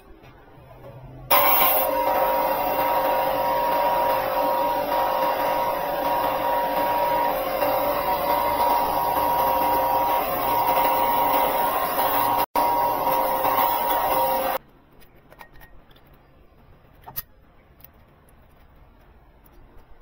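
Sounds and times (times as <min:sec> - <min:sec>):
electric power tool whining: 0:01.3 - 0:14.6.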